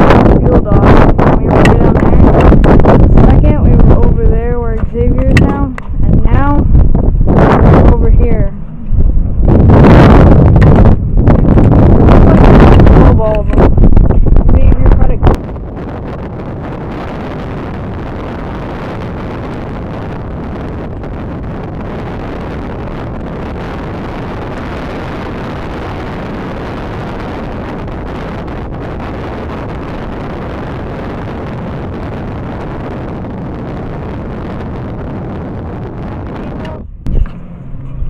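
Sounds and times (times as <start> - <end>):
wind buffeting microphone: 0.0 - 38.0.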